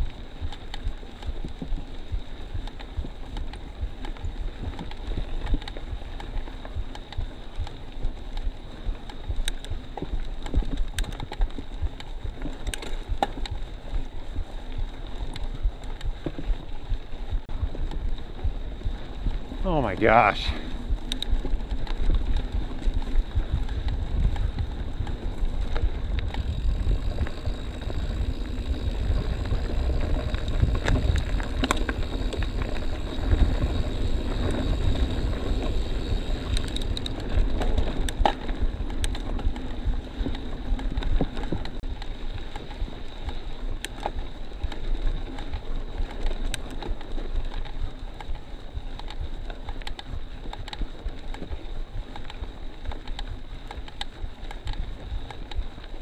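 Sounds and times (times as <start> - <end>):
bike clicks and rattles: 0.0 - 56.0
wind buffeting microphone: 13.0 - 43.4.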